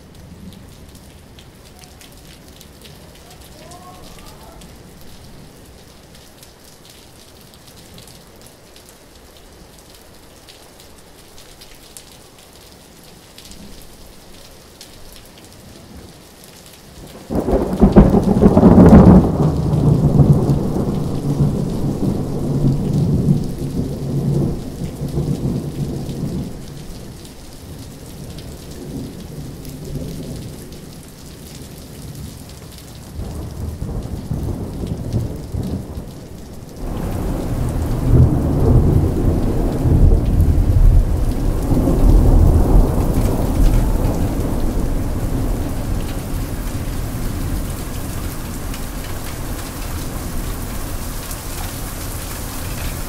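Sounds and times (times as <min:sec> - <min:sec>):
steady rain: 0:00.0 - 0:53.0
rolling thunder: 0:17.2 - 0:26.8, 0:33.2 - 0:51.2.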